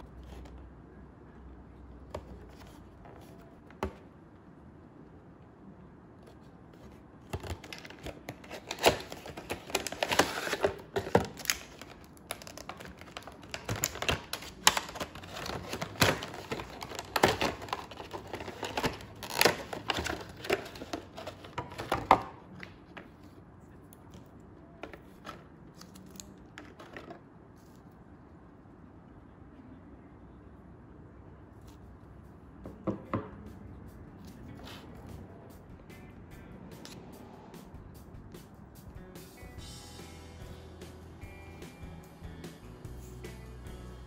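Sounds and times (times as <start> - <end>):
plastic packaging crinkling: 6.4 - 22.2.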